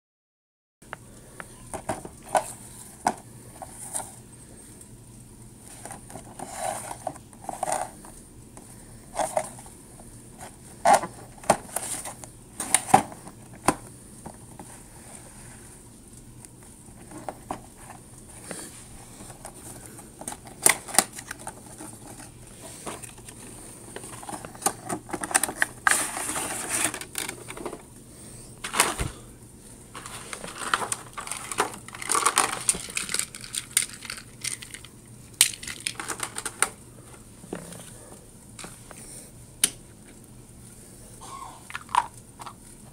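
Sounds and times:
cardboard scraping and rustling: 0:05.7 - 0:08.0, 0:17.0 - 0:27.9, 0:30.0 - 0:32.9.

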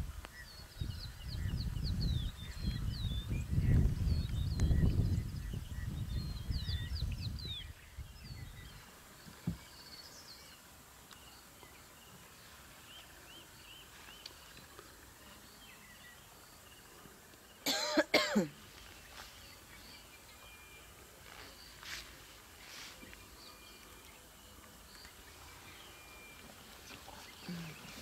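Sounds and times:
birds chirping: 0:00.0 - 0:28.0
loud cough: 0:17.6 - 0:18.6.

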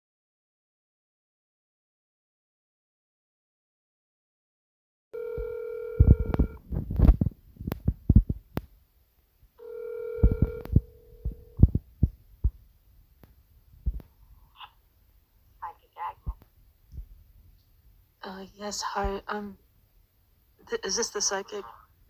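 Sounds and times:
telephone ringing tone: 0:05.2 - 0:06.6, 0:09.6 - 0:11.6
low thumps and clicks: 0:06.3 - 0:08.7, 0:10.4 - 0:12.6, 0:13.2 - 0:14.2.

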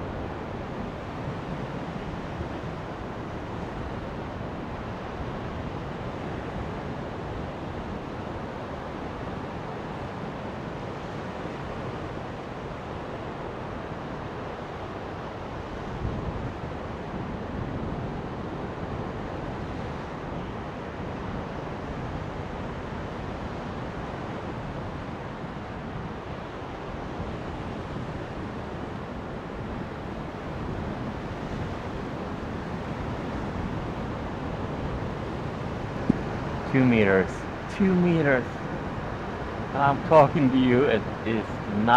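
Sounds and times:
surf on a beach: 0:00.0 - 0:41.9
wind rumbling on microphone: 0:15.5 - 0:40.2.

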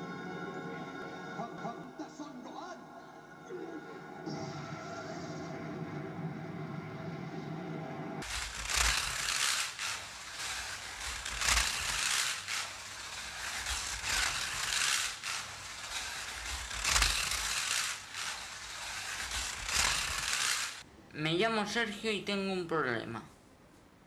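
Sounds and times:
slot car motor whirring: 0:08.2 - 0:20.8.

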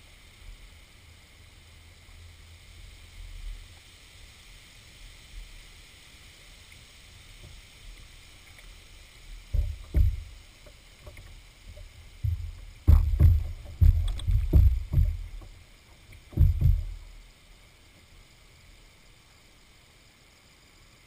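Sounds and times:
moving water hiss: 0:00.0 - 0:21.0
paddle thumps on canoe hull: 0:09.5 - 0:17.1.

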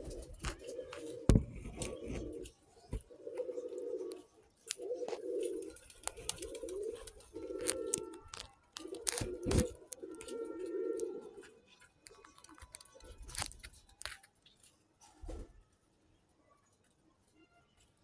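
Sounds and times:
pigeons cooing: 0:00.0 - 0:11.7.

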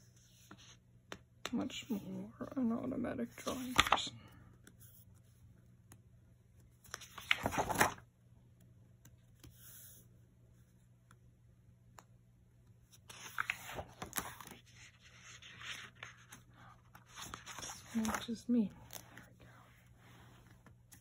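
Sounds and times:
paper pages rustling: 0:03.3 - 0:04.1, 0:06.7 - 0:08.1, 0:12.9 - 0:21.0.

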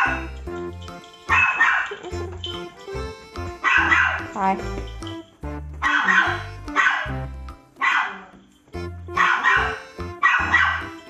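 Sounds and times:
bark-like yelps: 0:00.0 - 0:00.3, 0:01.3 - 0:02.0, 0:03.6 - 0:04.3, 0:05.8 - 0:07.2, 0:07.8 - 0:08.3, 0:09.2 - 0:11.0
upbeat music with bass line: 0:00.0 - 0:07.9, 0:08.8 - 0:11.0.

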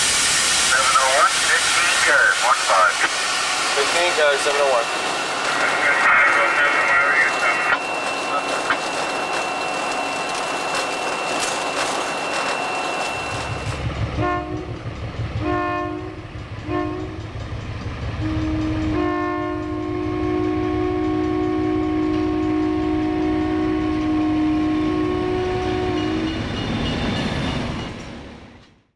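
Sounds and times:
locomotive engine rumble: 0:00.0 - 0:28.7
thin high tone: 0:05.6 - 0:13.9
locomotive air horn chord: 0:14.2 - 0:14.8, 0:15.4 - 0:17.3, 0:18.2 - 0:26.5.

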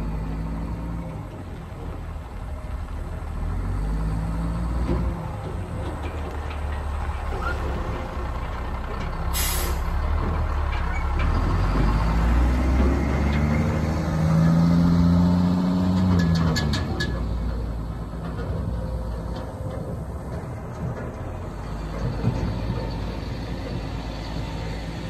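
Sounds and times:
truck diesel engine accelerating: 0:00.0 - 0:25.0
air brake hiss: 0:09.3 - 0:10.0.

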